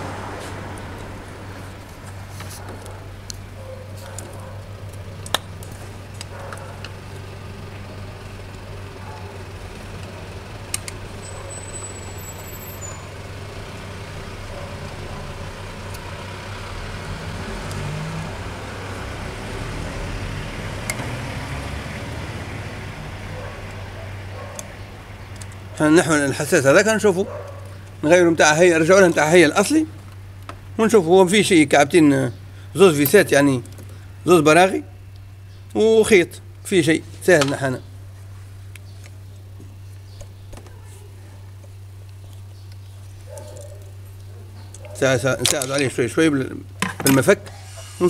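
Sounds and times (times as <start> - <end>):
diesel engine idling: 4.3 - 35.6.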